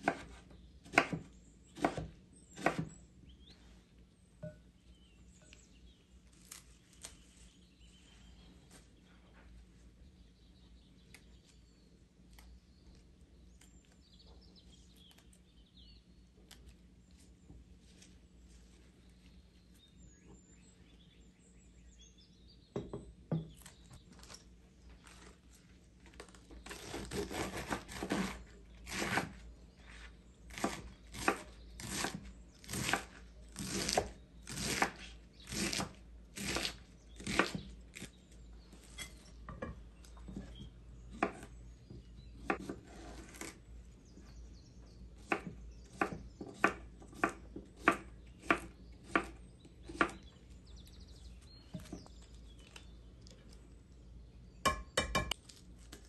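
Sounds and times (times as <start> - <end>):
knife chopping lettuce on wood: 0.0 - 3.0, 26.2 - 29.4, 30.5 - 38.1, 38.8 - 43.6, 45.2 - 50.3.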